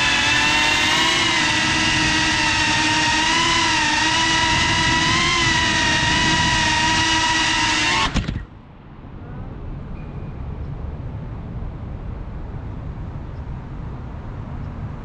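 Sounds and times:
drone motors whining: 0:00.0 - 0:08.6.

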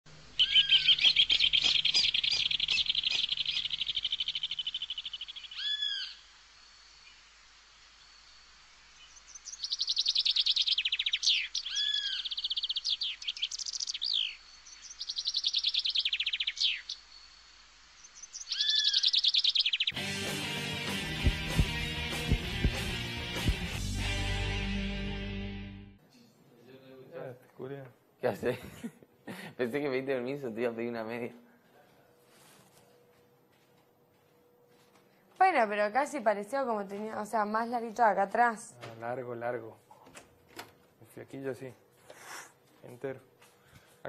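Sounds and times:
songbird singing high trills: 0:00.4 - 0:06.2, 0:09.0 - 0:17.1, 0:18.0 - 0:20.0.

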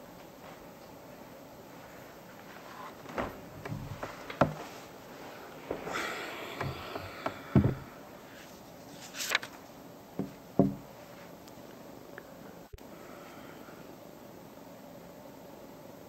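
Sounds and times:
faint steady hiss: 0:00.0 - 0:16.0
chair scraping: 0:02.5 - 0:08.0
knocks and thumps of furniture: 0:03.0 - 0:08.0, 0:10.2 - 0:10.9.

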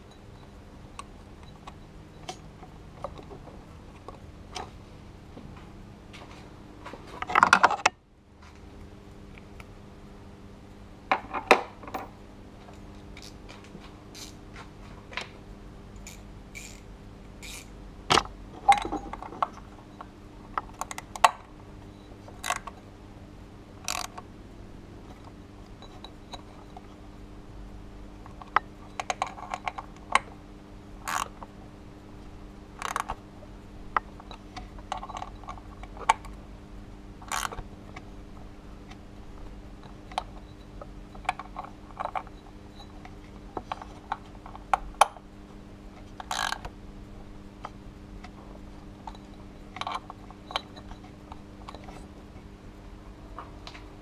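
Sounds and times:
steady low hum: 0:00.0 - 0:54.0
socket ratchet clicking: 0:14.2 - 0:14.4, 0:16.0 - 0:17.7, 0:23.9 - 0:24.1, 0:31.1 - 0:31.3, 0:37.3 - 0:37.6, 0:46.2 - 0:46.6.

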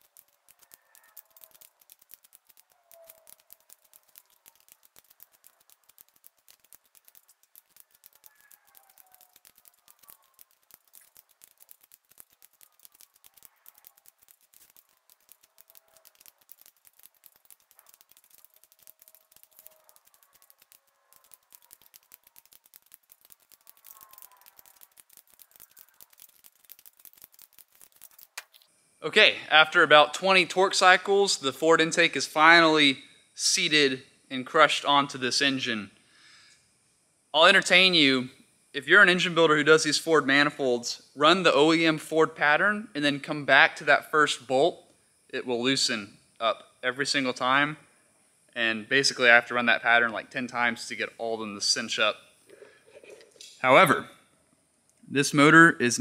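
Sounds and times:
torque wrench ratchet clicking: 0:00.0 - 0:28.7.

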